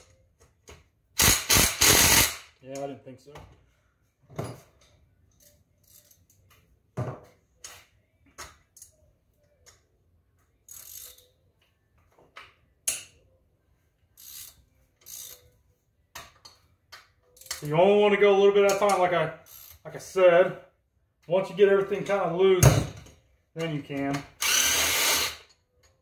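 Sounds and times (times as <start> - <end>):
ratchet wrench clicking: 5.3 - 6.4, 10.6 - 11.4, 14.2 - 15.6, 18.8 - 19.8, 24.4 - 26.0.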